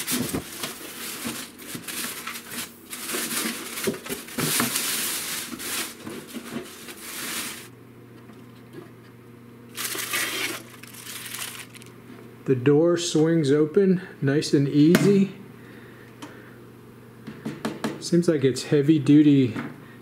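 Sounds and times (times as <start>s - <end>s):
foam packaging scraping: 0.0s - 7.7s, 9.7s - 11.9s
plastic wrap crinkling: 0.0s - 7.7s, 9.7s - 12.0s.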